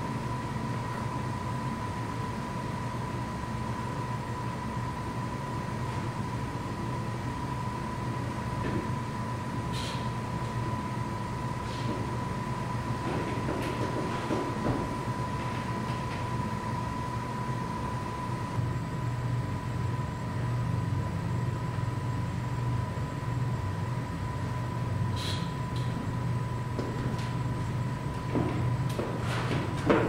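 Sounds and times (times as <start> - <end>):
low room rumble: 0.0 - 30.0
hands and shoes on wooden holds: 13.0 - 16.1, 26.8 - 30.0.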